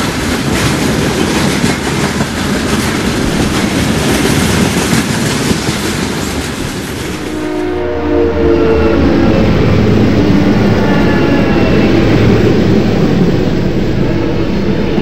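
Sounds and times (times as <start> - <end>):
locomotive engine rumble: 6.4 - 15.0
train horn chord: 6.9 - 15.0.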